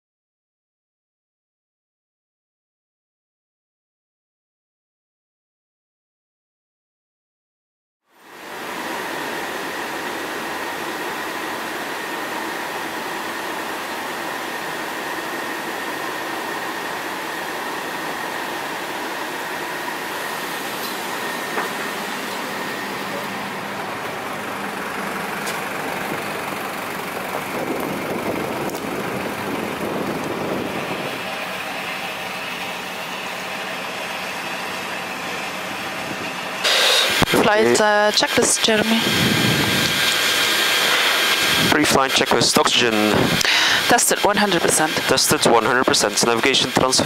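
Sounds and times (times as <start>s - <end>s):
bus vehicle noise: 8.1s - 47.0s
faint steady whine: 8.1s - 47.0s
machinery noise: 8.2s - 47.0s
rumble: 21.2s - 32.2s.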